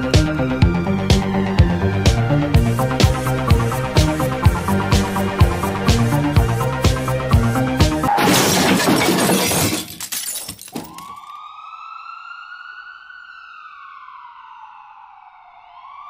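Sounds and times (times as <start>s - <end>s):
loud crash with shattering: 8.1s - 11.2s
siren wailing: 10.8s - 16.0s.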